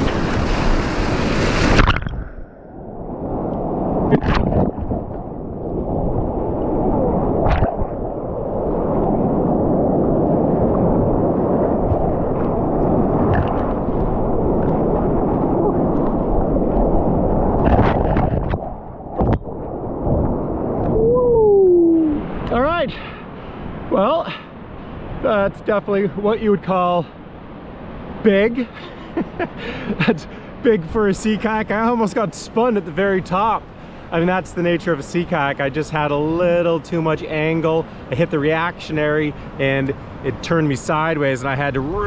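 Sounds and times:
water slapping and splashing: 0.0 - 2.4, 3.5 - 21.0
muffled waves washing over microphone: 0.0 - 42.0.

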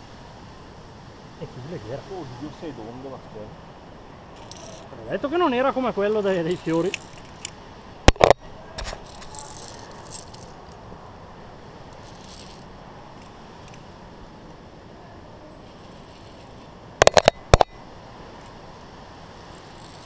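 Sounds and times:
carabiners clinking on steel cable: 4.4 - 4.9, 6.4 - 7.6, 8.2 - 10.9, 11.9 - 13.8, 15.6 - 17.7, 19.4 - 20.0.

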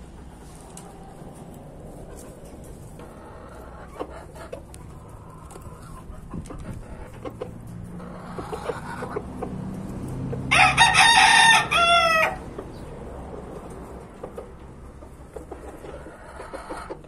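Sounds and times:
faint clucking: 2.0 - 9.6
rooster crowing: 10.4 - 12.5.

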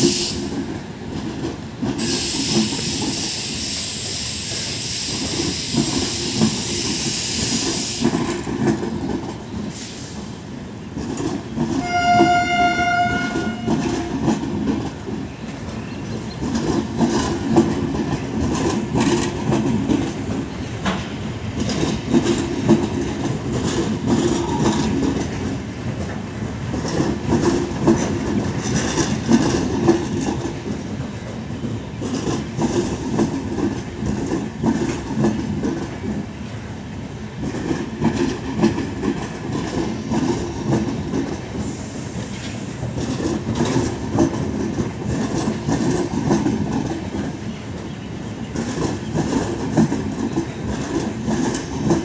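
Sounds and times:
train coaches rumbling past: 0.0 - 52.0
wheel clatter over rail joints: 5.2 - 52.0
train horn: 11.7 - 14.2.

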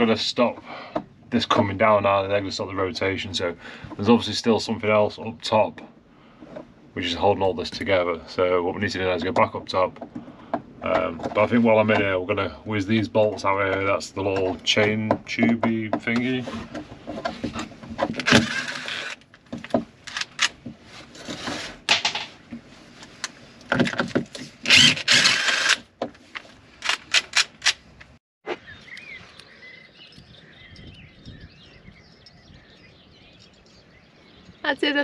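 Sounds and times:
power driver backing out bolts: 9.3 - 20.4
birds chirping: 28.4 - 35.0.

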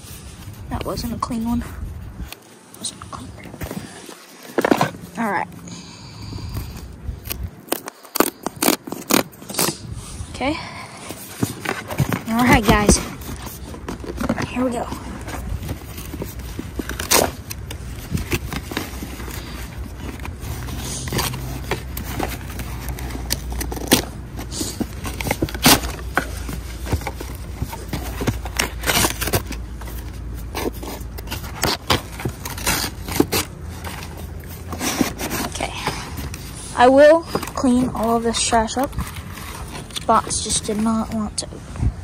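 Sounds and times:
cardboard box torn open: 6.6 - 10.0, 11.0 - 40.8.

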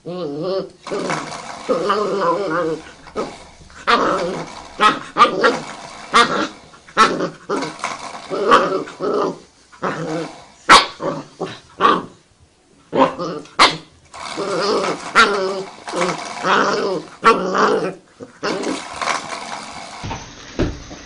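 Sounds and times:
dog barking: 10.7 - 11.0.

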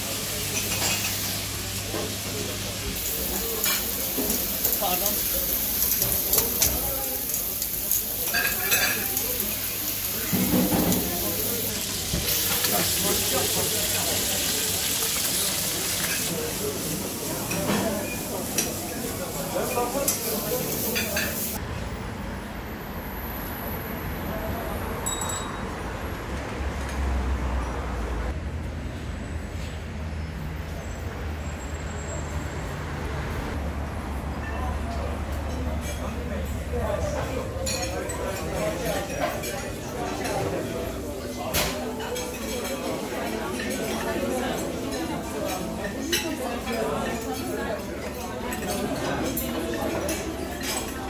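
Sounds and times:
patties sizzling on a grill: 0.0 - 21.6.

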